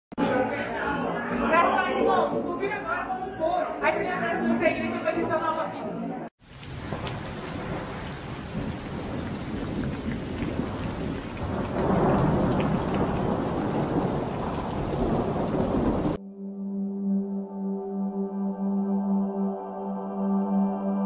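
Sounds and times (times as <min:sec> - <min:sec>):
rain downpour hiss: 0:06.4 - 0:16.2
thunder rumble: 0:06.4 - 0:16.2.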